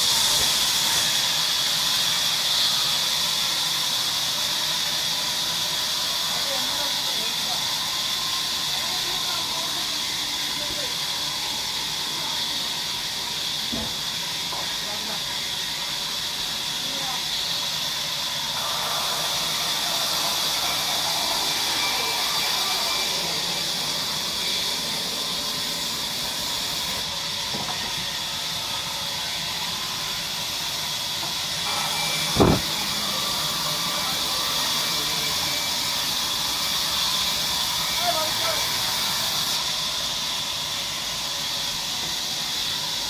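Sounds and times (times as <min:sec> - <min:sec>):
band saw running: 0:00.0 - 0:43.0
heavy thump: 0:32.4 - 0:32.8.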